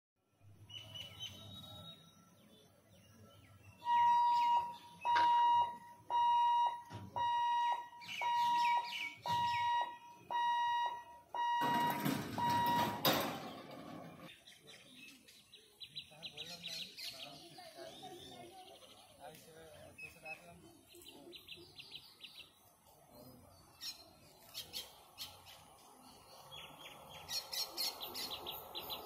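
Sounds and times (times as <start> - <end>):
birds chirping: 0.6 - 29.0
level crossing hooter beeping: 3.8 - 14.3.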